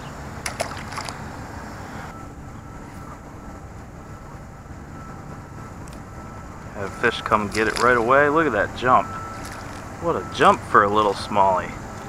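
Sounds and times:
fish splashing into water: 0:00.4 - 0:01.3, 0:07.4 - 0:08.3, 0:09.3 - 0:10.0.

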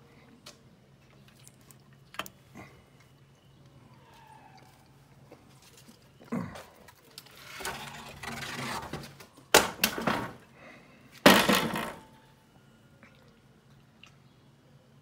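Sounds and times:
rustling scrape: 0:07.3 - 0:09.2.

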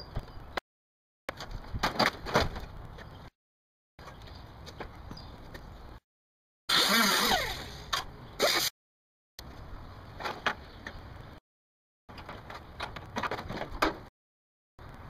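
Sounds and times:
loud creaking screech: 0:06.7 - 0:08.7.

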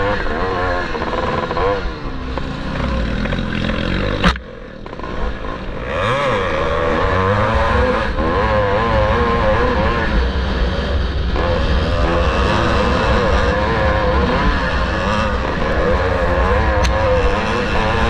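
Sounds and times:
motocross bike engine revving: 0:00.0 - 0:18.0.

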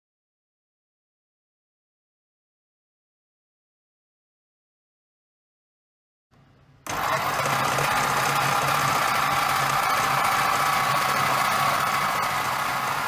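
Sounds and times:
food processor motor whirring: 0:06.9 - 0:13.0.

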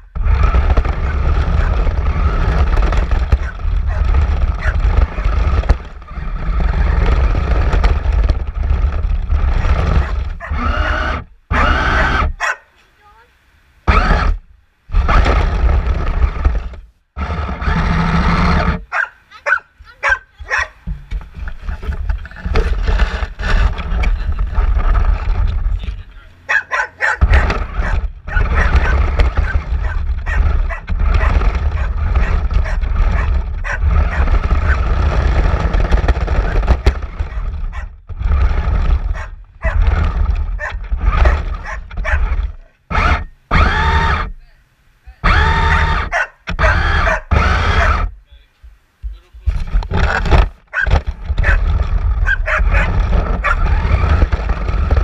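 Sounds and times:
toy car rumbling on asphalt: 0:00.0 - 0:12.4, 0:13.8 - 0:19.1, 0:19.8 - 0:44.4, 0:45.2 - 0:48.1, 0:49.4 - 0:55.0
dog barking and growling: 0:00.9 - 0:06.4, 0:09.5 - 0:12.8, 0:18.8 - 0:20.9, 0:26.4 - 0:35.4, 0:36.3 - 0:38.0, 0:38.9 - 0:42.8, 0:45.5 - 0:48.1, 0:50.7 - 0:54.4.

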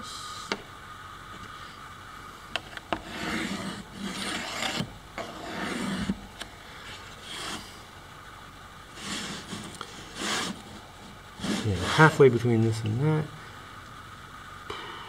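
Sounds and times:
ruler and pencil scraping: 0:02.9 - 0:06.2, 0:06.9 - 0:07.8, 0:08.9 - 0:10.8, 0:11.4 - 0:12.2.

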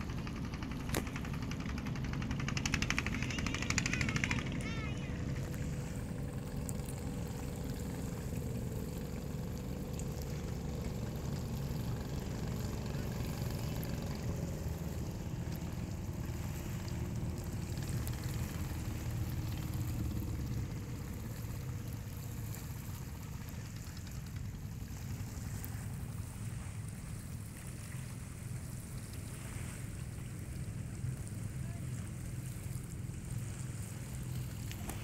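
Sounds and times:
distant speedboat engine droning: 0:00.0 - 0:35.0
lapping water: 0:13.6 - 0:35.0.

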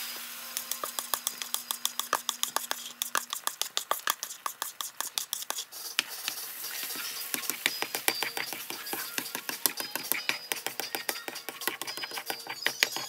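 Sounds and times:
eggs crackling in hot oil: 0:00.0 - 0:13.0.

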